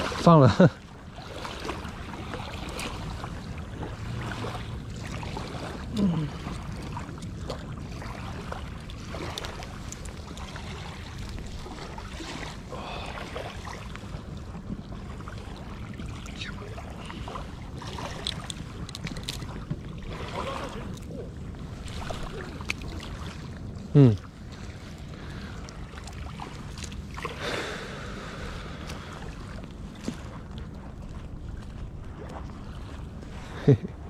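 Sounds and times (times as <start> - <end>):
water: 0.0 - 34.0
fishing tackle clicks: 18.1 - 19.5.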